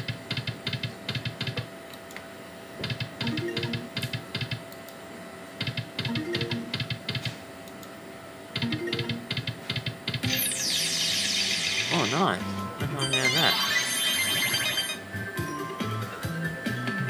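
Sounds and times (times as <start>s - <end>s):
slot machine reel clicks: 3.2s - 4.6s, 5.6s - 7.2s, 8.6s - 12.4s, 13.0s - 15.0s.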